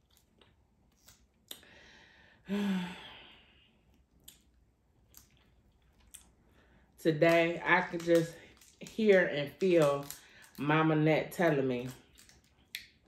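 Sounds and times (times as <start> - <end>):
woman breathing in: 1.6 - 3.8
woman sighing: 2.3 - 3.5.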